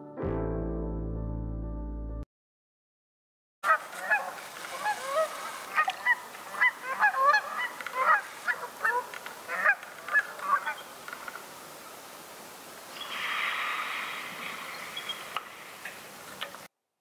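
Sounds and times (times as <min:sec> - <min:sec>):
geese honking: 0:03.7 - 0:10.9, 0:13.8 - 0:16.5.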